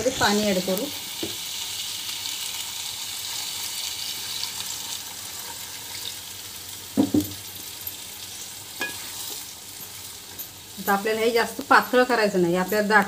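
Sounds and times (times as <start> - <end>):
food sizzling in oil: 0.0 - 13.0
ladle clinking: 8.8 - 9.2.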